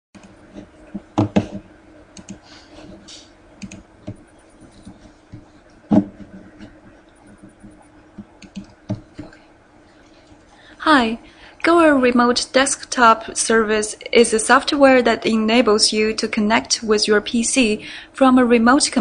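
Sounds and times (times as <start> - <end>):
faint steady hum: 0.2 - 19.0
computer keyboard and mouse clicks: 2.2 - 2.4, 3.6 - 5.4, 6.6 - 9.4.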